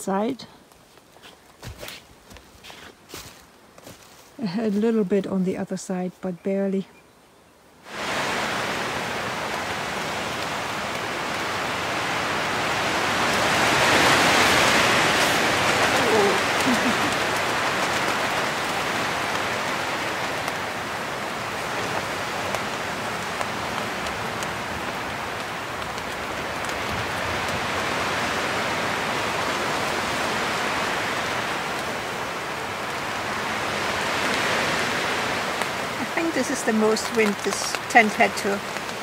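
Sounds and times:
gusting wind: 0:00.0 - 0:39.0
heavy rain on tent: 0:07.8 - 0:39.0
raindrop ticks: 0:08.9 - 0:12.2, 0:15.2 - 0:27.9, 0:31.6 - 0:32.0, 0:35.4 - 0:39.0.

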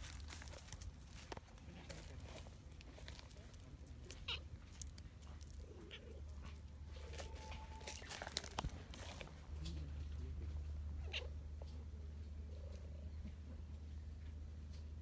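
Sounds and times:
dry leaves rustling: 0:00.0 - 0:06.0, 0:06.6 - 0:09.8.

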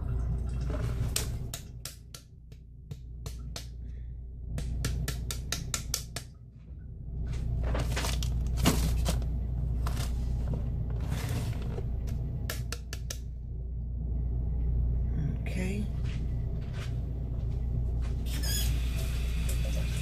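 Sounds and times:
steady low hum: 0:00.0 - 0:20.0
plastic rustling: 0:07.4 - 0:12.0.

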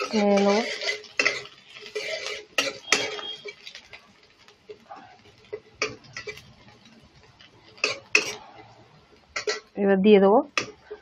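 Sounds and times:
metal spoon clinking against pan: 0:00.0 - 0:04.0, 0:04.7 - 0:06.8, 0:09.3 - 0:09.8
garlic sizzling in hot oil: 0:00.0 - 0:11.0.

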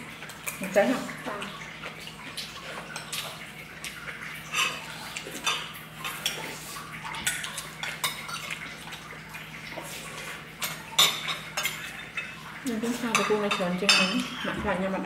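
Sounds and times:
tableware clinking on dishes: 0:13.2 - 0:14.7.

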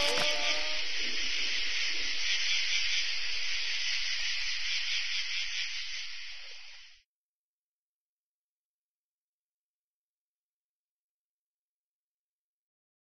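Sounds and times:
steady high hiss: 0:00.0 - 0:07.0.

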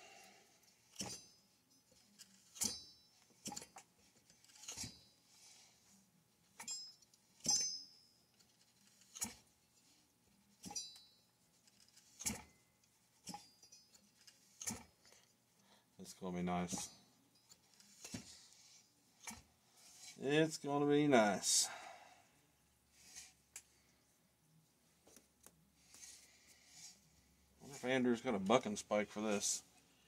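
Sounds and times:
metallic clinks and clicks: 0:00.9 - 0:05.1, 0:06.6 - 0:09.5, 0:10.6 - 0:12.6.

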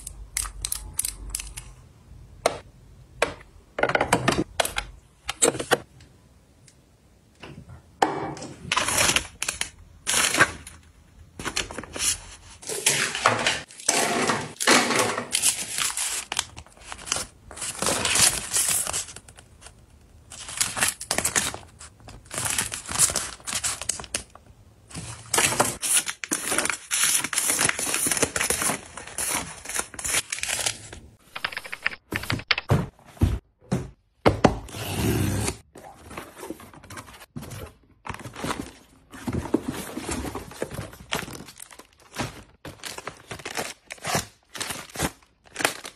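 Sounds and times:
plastic and paper wrappers crinkling: 0:08.7 - 0:32.6, 0:36.0 - 0:45.9.

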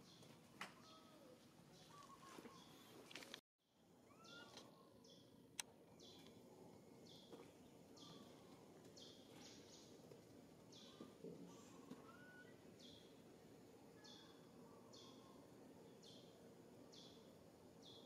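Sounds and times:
bird chirping: 0:00.0 - 0:03.0, 0:04.1 - 0:05.3, 0:06.0 - 0:06.3, 0:08.0 - 0:10.0, 0:10.7 - 0:13.2, 0:14.0 - 0:18.0.

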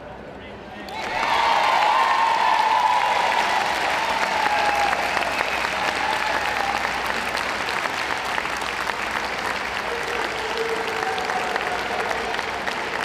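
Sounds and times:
audience applauding: 0:00.9 - 0:13.0.

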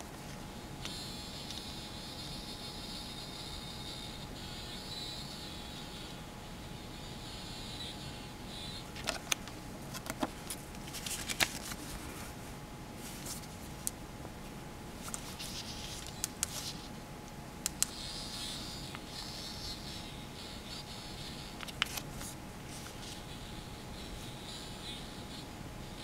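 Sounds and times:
faint hiss and hum: 0:00.0 - 0:26.0
paper card handling: 0:08.9 - 0:12.1, 0:15.0 - 0:16.9, 0:21.6 - 0:23.2.

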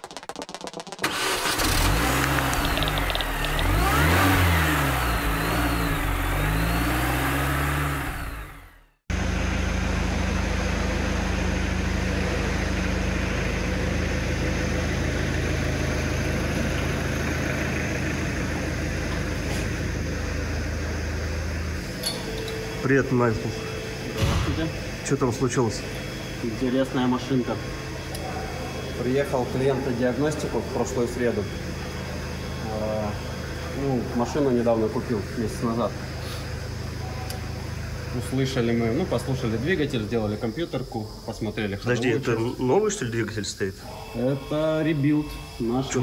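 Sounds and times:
engine revving: 0:01.0 - 0:37.0
low mechanical hum: 0:01.8 - 0:46.0.

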